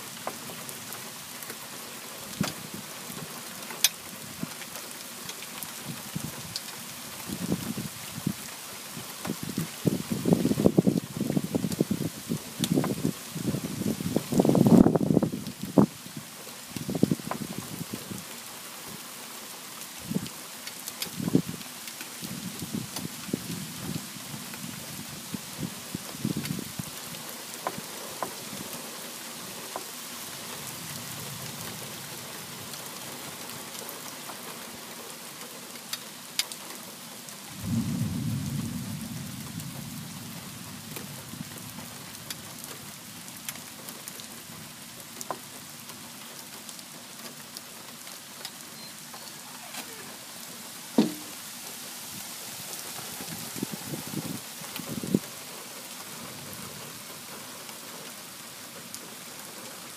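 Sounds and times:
steady rain falling: 0:00.0 - 0:59.9
thunder rumble: 0:37.6 - 0:42.0
sharp tap: 0:51.0 - 0:51.3.

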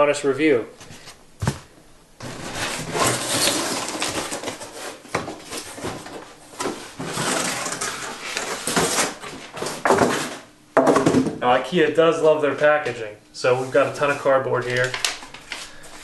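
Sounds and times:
cardboard scraping and rustling: 0:00.8 - 0:10.5.

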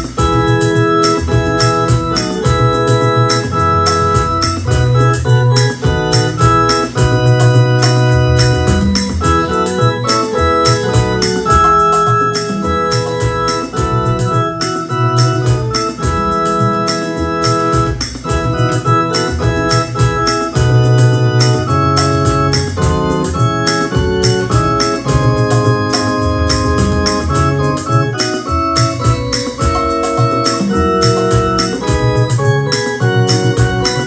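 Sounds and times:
electronic keyboard playing hymn chords: 0:00.0 - 0:34.0
sharp high ticks: 0:00.0 - 0:34.0.

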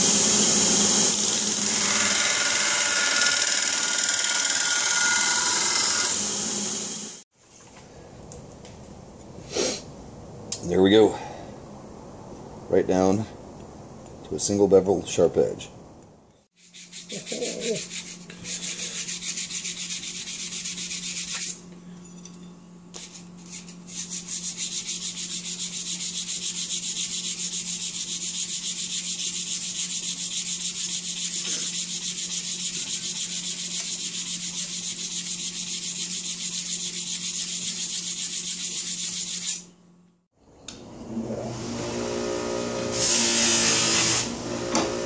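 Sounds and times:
knife blade rubbing on sandpaper: 0:16.6 - 0:21.6, 0:22.9 - 0:39.7.

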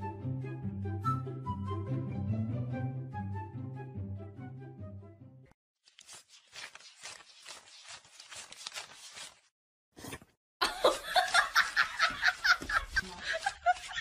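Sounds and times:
loud laughter: 0:10.6 - 0:14.0.

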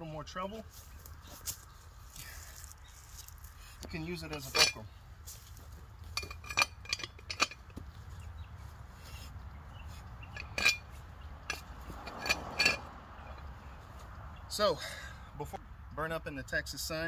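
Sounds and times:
metal bar clinking on steel: 0:04.3 - 0:04.8, 0:06.2 - 0:07.8, 0:10.4 - 0:10.9, 0:11.5 - 0:12.8.

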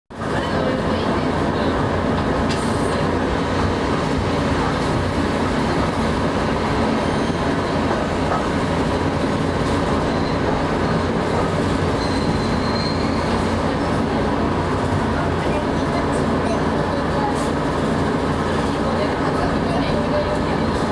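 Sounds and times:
tram motors and wheels rumbling: 0:00.1 - 0:20.9.

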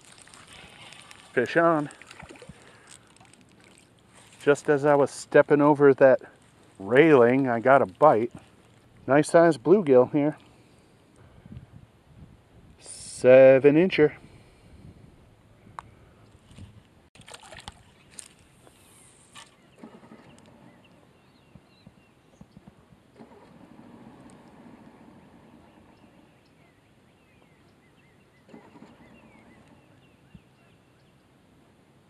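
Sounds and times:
fish splashing into water: 0:00.0 - 0:04.4, 0:17.2 - 0:18.4
distant outboard motor: 0:17.2 - 0:30.8.

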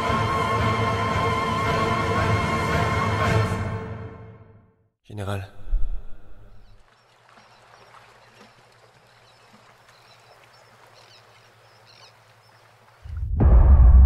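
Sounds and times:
sea wash: 0:05.6 - 0:13.2
distant bird chirps: 0:06.0 - 0:13.0
loud deep boom: 0:13.1 - 0:14.0.

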